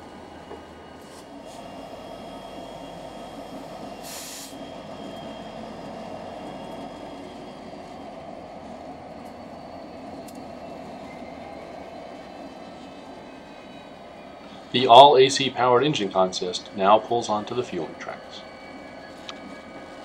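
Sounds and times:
diesel engine drone: 0.0s - 12.2s
air hiss: 4.0s - 4.6s.

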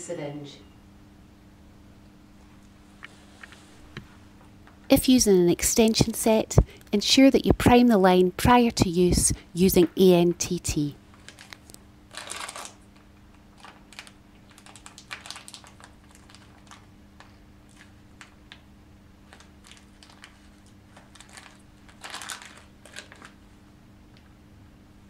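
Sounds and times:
plastic packet rustling: 11.1s - 18.4s, 19.2s - 23.4s.

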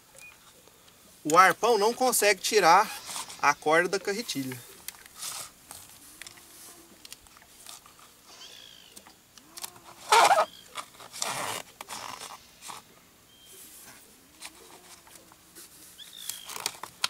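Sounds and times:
line rustling and scraping on wood: 2.7s - 3.6s, 13.5s - 17.0s.

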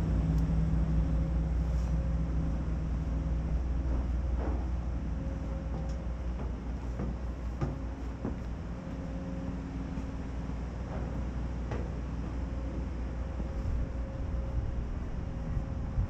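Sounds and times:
faint machine hum: 0.0s - 16.0s
wind on microphone: 13.4s - 16.0s.

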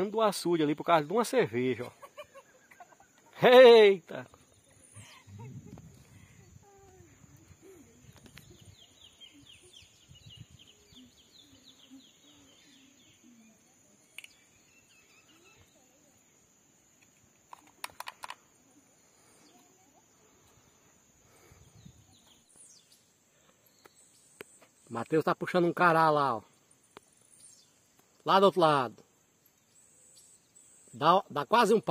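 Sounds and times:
sharp clicks: 14.1s - 14.4s, 17.0s - 18.4s.

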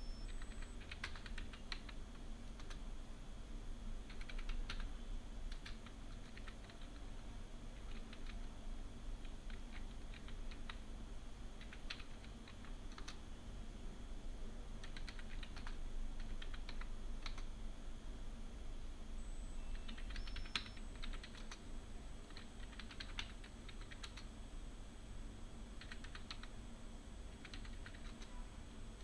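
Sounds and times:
faint low hum: 0.0s - 29.0s
typing on computer keyboard: 0.3s - 2.8s, 4.1s - 4.9s, 5.5s - 7.1s, 7.8s - 8.5s, 9.2s - 10.8s, 11.6s - 13.2s, 14.8s - 17.5s, 19.7s - 21.6s, 22.3s - 24.3s, 25.8s - 26.5s, 27.3s - 28.3s.

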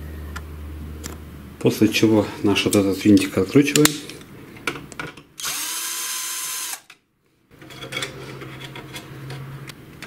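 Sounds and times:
electric screwdriver whirring: 5.4s - 6.9s.

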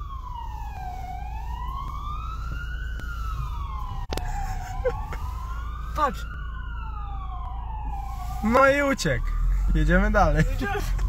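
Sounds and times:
car interior rumble: 0.0s - 11.0s
police siren wailing: 0.0s - 11.0s.

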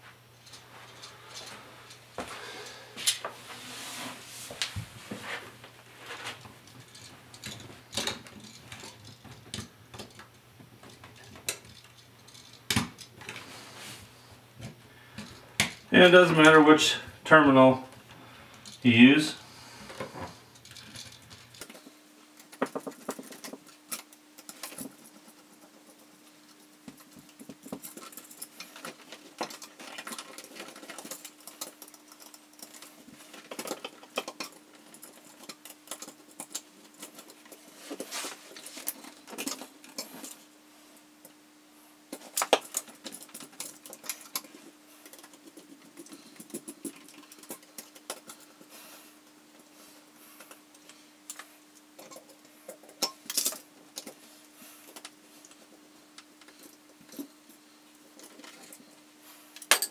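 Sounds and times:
faint hum: 0.0s - 59.9s.

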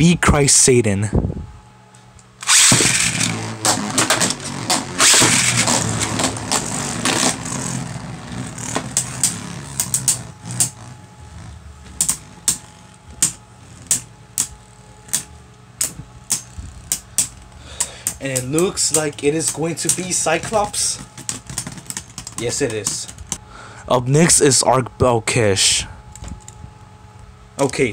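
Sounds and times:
spinning tops whirring and scraping: 2.4s - 17.5s.

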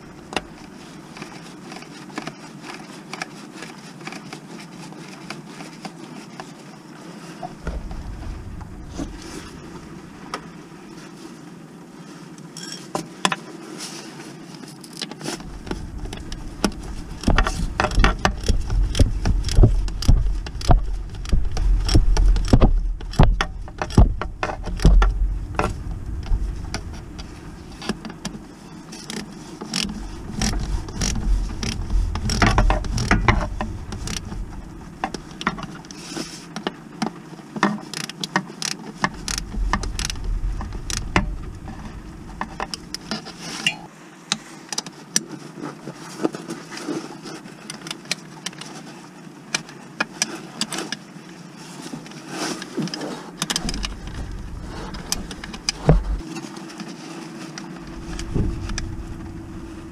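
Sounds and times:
low rumble: 7.5s - 11.2s, 15.4s - 36.0s, 39.1s - 43.8s, 53.5s - 56.2s, 57.7s - 59.9s.

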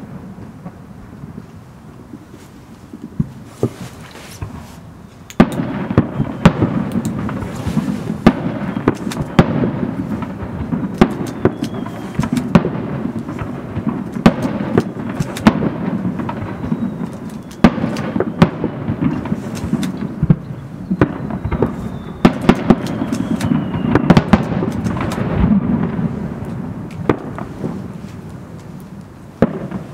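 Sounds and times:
fireworks bursting with sharp bangs: 0.0s - 29.9s
faint falling whistle: 11.3s - 12.3s, 16.4s - 17.7s, 20.8s - 24.3s.

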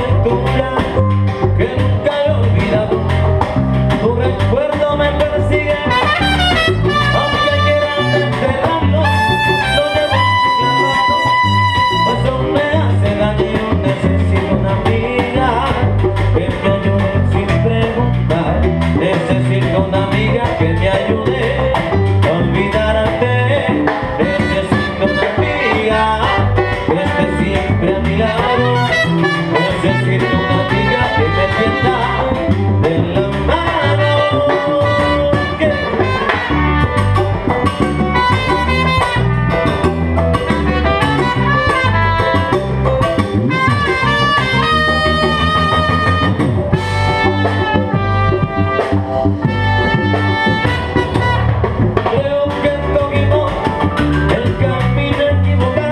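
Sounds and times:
congas and bongos: 0.0s - 55.9s
drum kit: 0.0s - 55.9s
electric bass: 0.0s - 55.9s
piano: 0.0s - 55.9s
trumpet: 5.3s - 13.3s, 24.0s - 53.1s.

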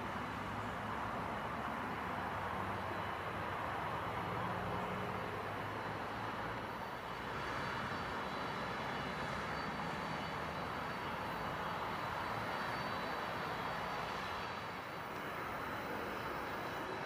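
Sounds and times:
jet engines taxiing: 0.0s - 17.0s.

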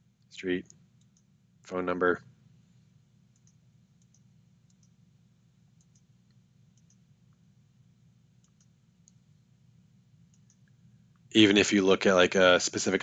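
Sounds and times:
faint low room hum: 0.0s - 13.0s
computer mouse clicks: 0.6s - 1.3s, 3.3s - 5.0s, 5.8s - 7.0s, 8.4s - 9.2s, 10.3s - 10.8s.

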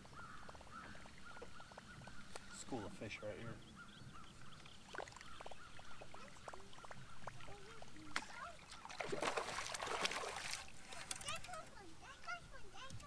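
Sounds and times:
faint bird calls: 0.0s - 13.0s
water splashing: 4.3s - 12.6s.

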